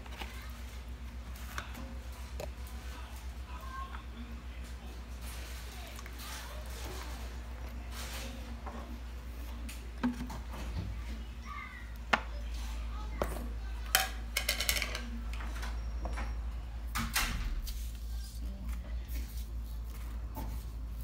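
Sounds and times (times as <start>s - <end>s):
objects clacking on countertop: 13.2s - 15.6s.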